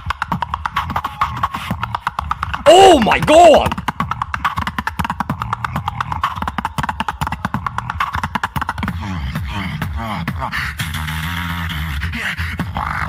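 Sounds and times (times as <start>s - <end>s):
beatboxing mouth sounds: 0.0s - 13.0s
vocal bass sounds: 2.5s - 3.8s
steady beat: 2.6s - 3.8s.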